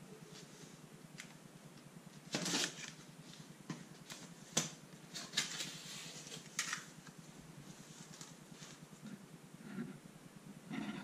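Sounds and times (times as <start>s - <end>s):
cardboard scraping and rustling: 2.3s - 3.0s, 5.1s - 6.8s.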